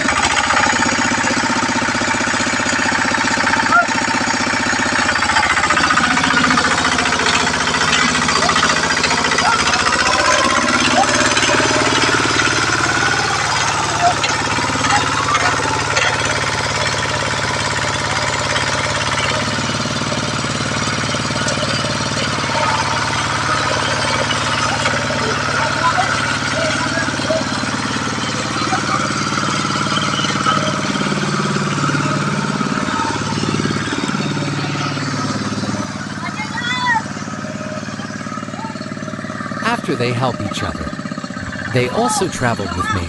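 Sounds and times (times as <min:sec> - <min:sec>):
diesel engine knocking: 0:00.0 - 0:43.0
men's voices: 0:39.6 - 0:43.0.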